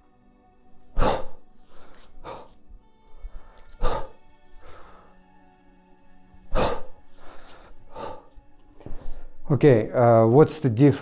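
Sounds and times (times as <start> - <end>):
background music sustained tones: 0.0 - 11.0
man breathing out forcefully: 0.9 - 5.3, 6.4 - 9.4.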